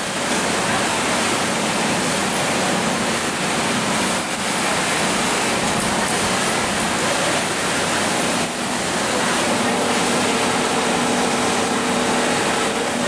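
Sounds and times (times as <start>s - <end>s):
workshop rushing noise: 3.8s - 13.0s.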